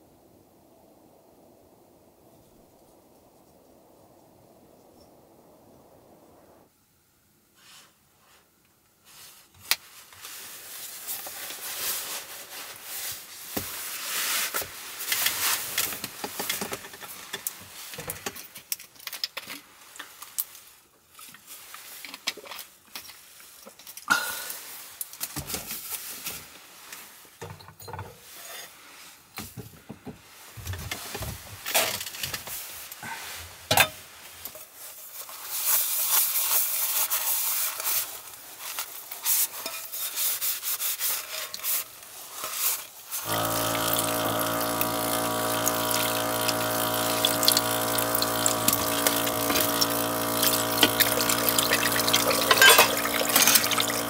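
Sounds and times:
small clicks and rustles: 8.6 - 24.1, 24.7 - 43.3
sponge scrubbing dishes: 43.9 - 54.0.

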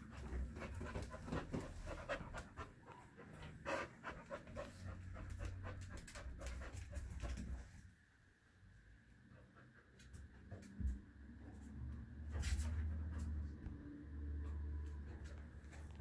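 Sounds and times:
dog panting: 0.0 - 7.7.

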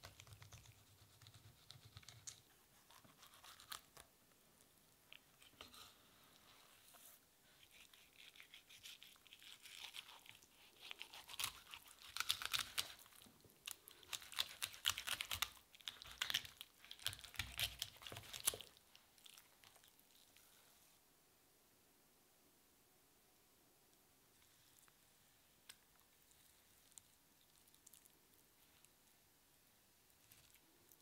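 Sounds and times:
flesh crackling and tearing: 7.7 - 19.9.

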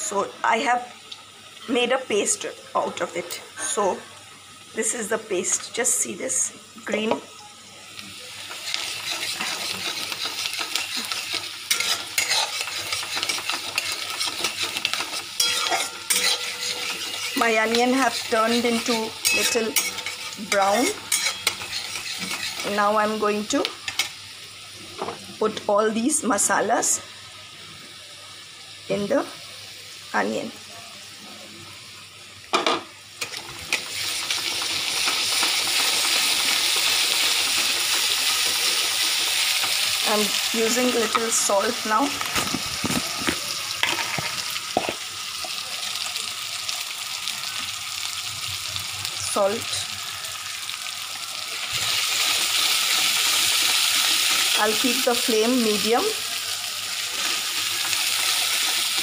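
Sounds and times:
onions sizzling in oil: 0.0 - 59.0
metal spatula scraping a pan: 8.5 - 23.2.

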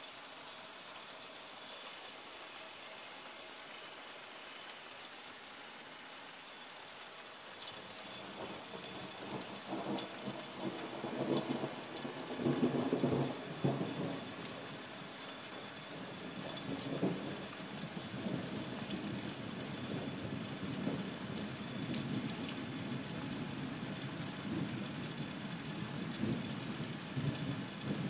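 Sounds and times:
steady rain hiss: 0.0 - 28.0
thunder rumbling: 8.2 - 14.4.

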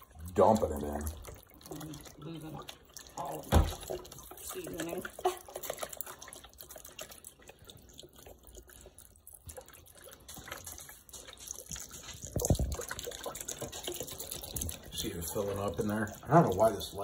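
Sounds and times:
liquid trickling and splashing: 0.0 - 17.0.

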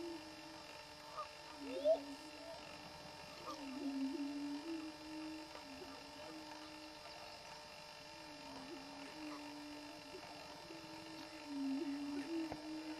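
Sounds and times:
faint higher bird calls: 0.0 - 5.0
prairie chickens booming: 0.0 - 12.9.

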